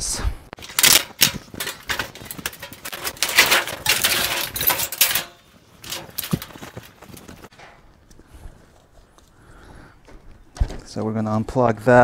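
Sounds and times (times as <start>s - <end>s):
sheet metal rattling and scraping: 0.6s - 7.8s.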